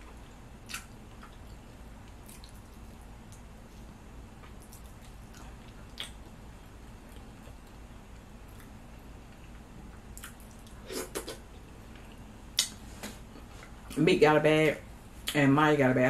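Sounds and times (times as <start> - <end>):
chewing: 0.7 - 6.4, 8.4 - 11.3.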